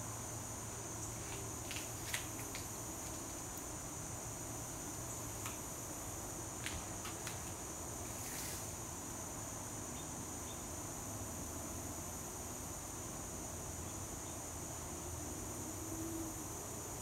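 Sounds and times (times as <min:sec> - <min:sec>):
insect chorus droning: 0:00.0 - 0:17.0
brief hiss: 0:08.1 - 0:08.8.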